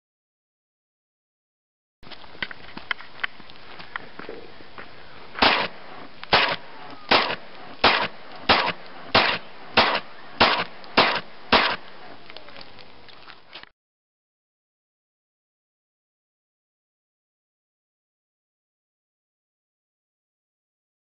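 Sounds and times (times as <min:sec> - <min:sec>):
handgun shots: 0:05.4 - 0:11.9.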